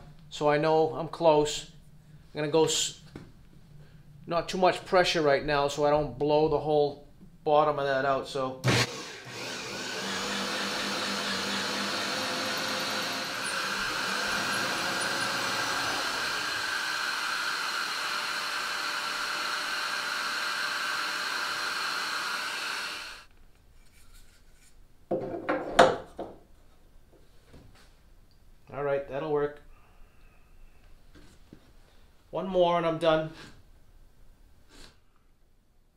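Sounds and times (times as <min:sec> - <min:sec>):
power drill with hole saw: 0:08.6 - 0:23.3.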